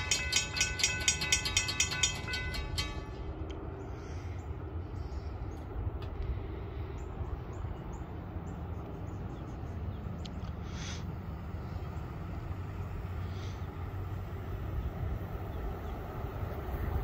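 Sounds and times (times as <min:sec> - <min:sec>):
crossing warning bell dings: 0:00.0 - 0:04.0
low steady rumble: 0:00.0 - 0:17.0.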